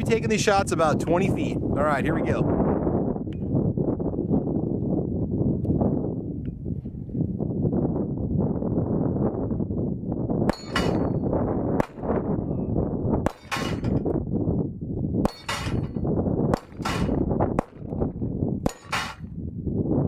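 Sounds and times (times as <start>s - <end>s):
wind buffeting microphone: 0.0s - 20.0s
steel targets clanging: 10.5s - 11.2s, 13.3s - 14.0s, 15.3s - 16.0s, 16.6s - 17.2s, 18.7s - 19.2s
pistol shots: 11.8s - 12.1s, 13.3s - 13.9s, 16.6s - 17.9s.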